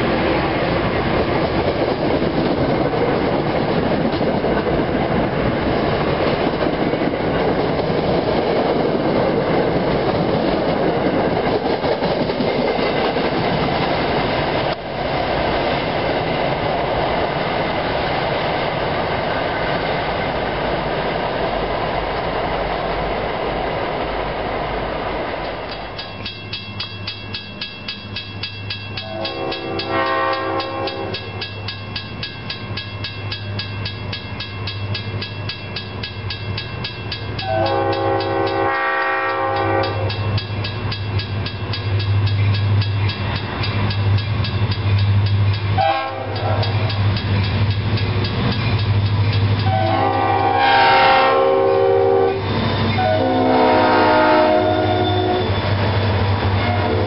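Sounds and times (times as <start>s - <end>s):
railroad crossing bell ringing: 25.7s - 57.0s
train air horn: 29.0s - 31.3s, 37.4s - 40.1s, 45.8s - 46.7s, 49.7s - 55.6s, 56.6s - 57.0s.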